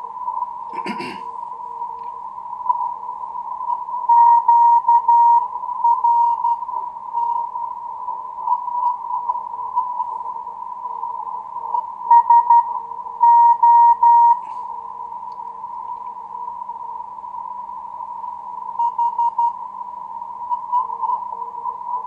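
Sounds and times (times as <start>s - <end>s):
receiver hiss: 0.0s - 22.0s
morse code beeps: 4.1s - 6.6s, 12.1s - 14.4s.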